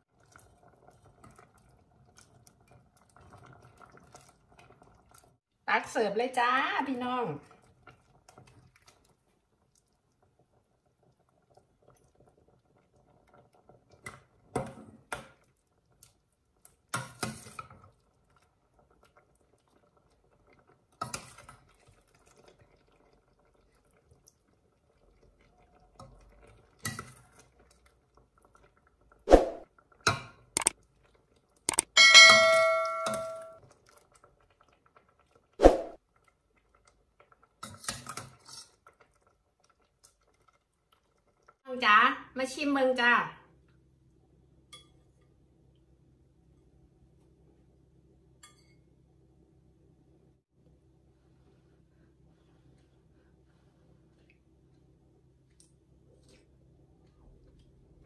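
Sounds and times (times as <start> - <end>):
metal ladle clinking against pot: 32.0 - 33.5.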